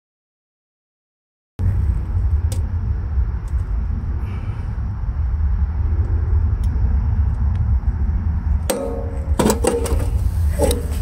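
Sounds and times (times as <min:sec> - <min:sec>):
steady low rumble: 0:01.6 - 0:11.0.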